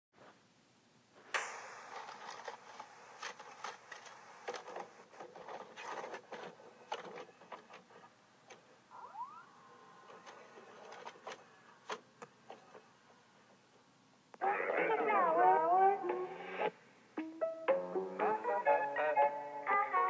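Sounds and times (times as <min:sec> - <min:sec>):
steady hiss: 0:00.2 - 0:08.9
short rising squeak: 0:08.9 - 0:09.9.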